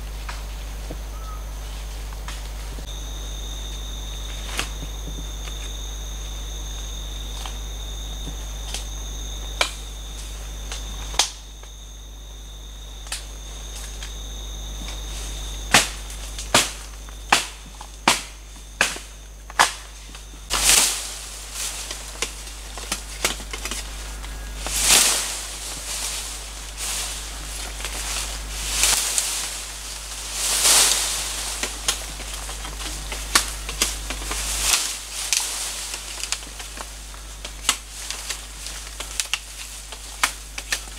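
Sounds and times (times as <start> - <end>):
high insect tone: 0.0 - 40.9
rustling leaves: 0.0 - 40.9
machete chopping bamboo: 15.7 - 21.0.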